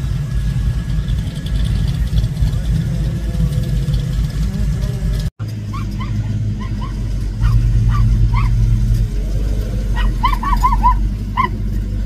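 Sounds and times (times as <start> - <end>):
car engine idling: 0.0 - 12.0
small dog yipping: 5.7 - 8.6, 9.9 - 11.6.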